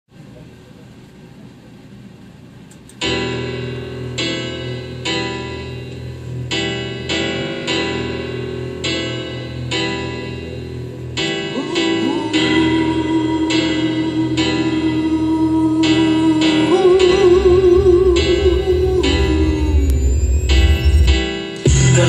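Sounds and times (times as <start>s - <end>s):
piano chords ringing: 3.0s - 22.0s.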